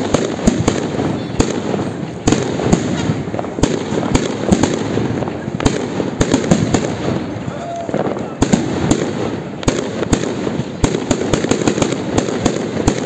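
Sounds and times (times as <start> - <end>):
fireworks bangs: 0.0 - 13.0
fireworks crackling: 0.0 - 13.0.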